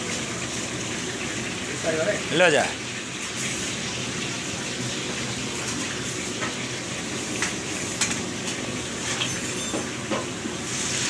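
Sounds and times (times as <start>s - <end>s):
food sizzling in hot oil: 0.0s - 11.0s
metal bowls and utensils clinking: 9.0s - 10.3s.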